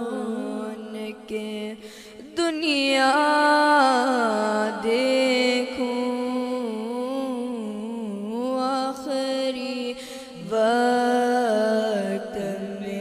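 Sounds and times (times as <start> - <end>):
boy singing unaccompanied: 0.0 - 1.8
boy breathing in: 1.8 - 2.2, 10.0 - 10.4.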